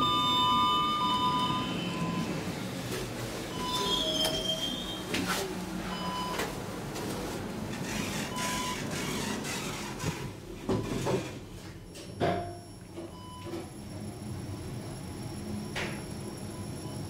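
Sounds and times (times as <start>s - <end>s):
elevator mechanical whir: 0.0s - 11.4s, 12.8s - 17.0s
elevator doors sliding: 0.0s - 11.9s.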